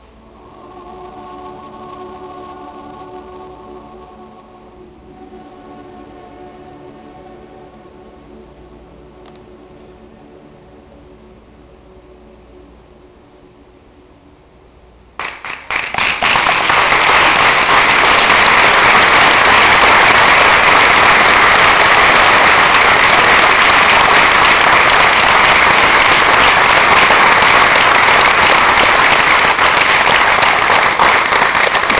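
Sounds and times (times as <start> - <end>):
audience applause: 15.2 - 31.9.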